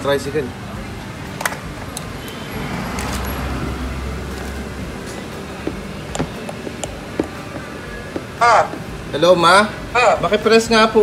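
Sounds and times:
motor tricycle engine rumble: 0.0 - 11.0.

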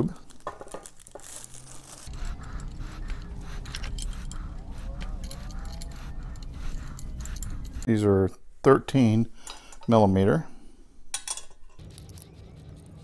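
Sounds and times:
metal bolts clinking: 2.1 - 7.9, 11.1 - 11.8.

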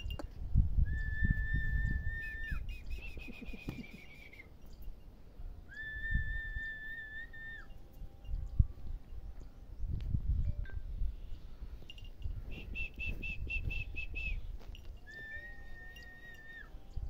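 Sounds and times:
high whistling: 0.8 - 4.7, 5.6 - 7.8, 12.4 - 17.0.

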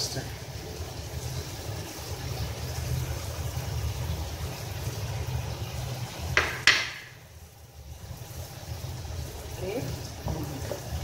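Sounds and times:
food simmering in a pan: 0.0 - 11.0.

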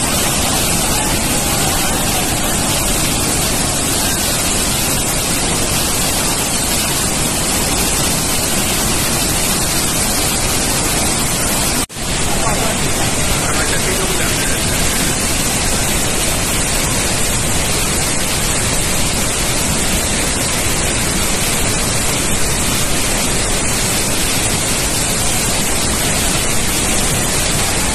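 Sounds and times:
waterfall rushing: 0.0 - 27.9.

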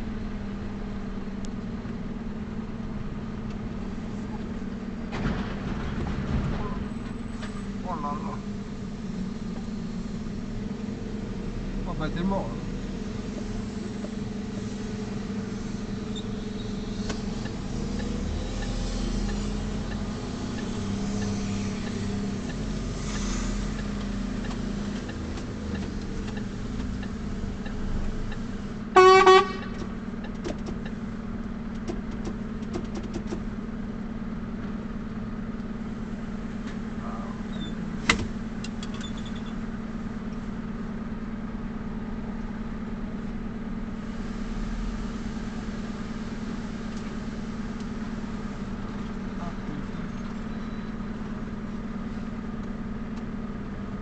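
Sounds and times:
truck engine running: 0.0 - 54.0
vehicle horn toot: 28.9 - 29.9.

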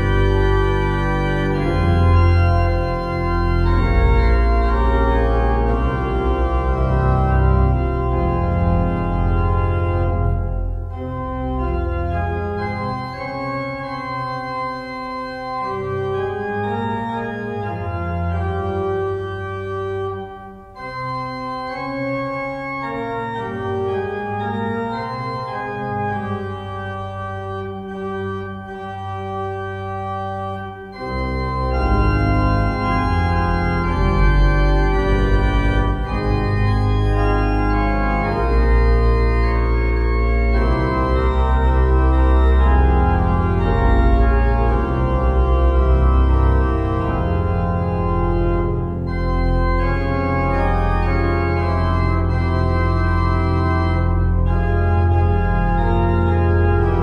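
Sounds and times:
deep bass notes: 0.0 - 13.2, 31.0 - 57.0
organ chords: 0.0 - 57.0.

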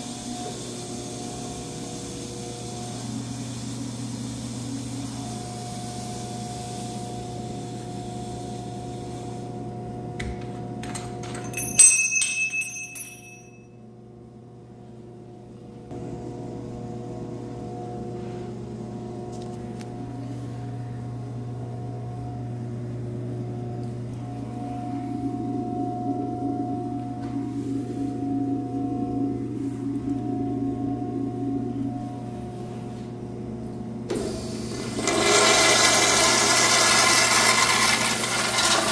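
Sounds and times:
steady low hum: 0.0 - 38.9
ringing metallic clink: 11.2 - 13.7.

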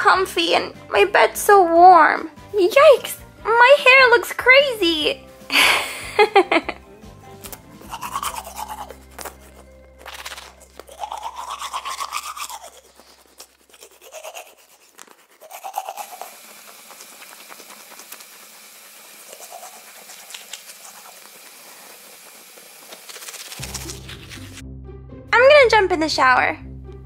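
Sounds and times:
light background music: 0.0 - 12.8, 23.6 - 27.0
toothbrush scrubbing teeth: 7.2 - 24.6.

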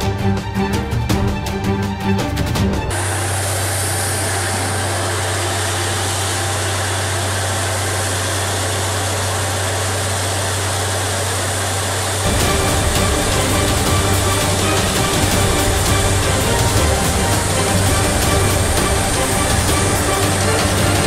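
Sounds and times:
music: 0.0 - 3.6, 12.2 - 21.0
drilling rig engine running: 0.0 - 21.0
water and air blasting out: 2.9 - 21.0.

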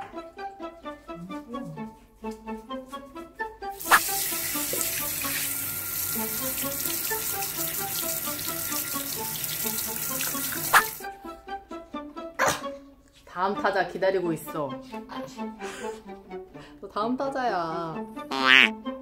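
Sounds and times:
shower head spraying water: 3.8 - 11.1.

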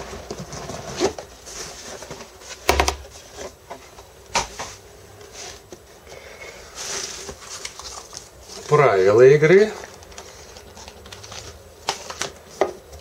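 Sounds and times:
dull knock on box: 2.7 - 3.1.

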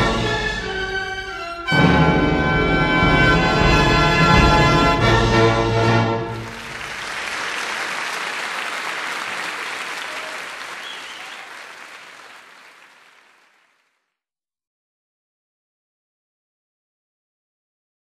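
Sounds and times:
orchestral music: 0.0 - 6.9
audience applause: 6.3 - 14.0.

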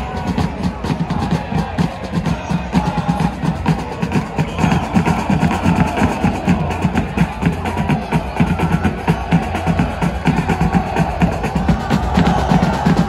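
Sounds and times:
crowd chanting: 0.0 - 13.0
drums beaten in fast rhythm: 0.0 - 13.0.

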